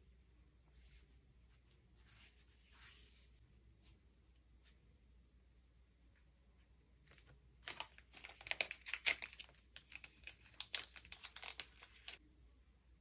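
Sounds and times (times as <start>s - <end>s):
plastic packaging crinkling: 7.2s - 12.2s.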